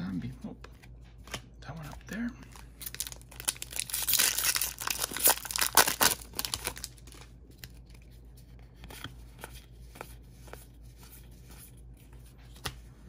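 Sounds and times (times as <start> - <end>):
playing cards clicking and sliding: 0.6 - 2.1, 7.9 - 13.0
foil wrapper crinkling and tearing: 2.5 - 7.8.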